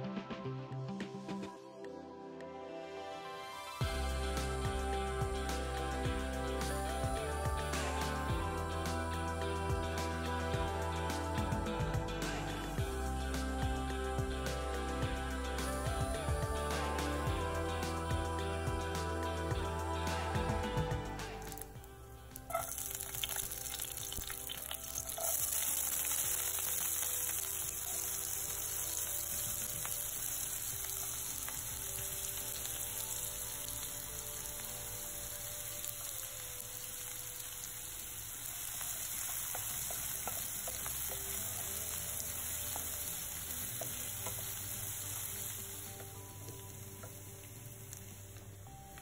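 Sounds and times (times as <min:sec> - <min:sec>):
food sizzling in hot oil: 0:03.8 - 0:49.0.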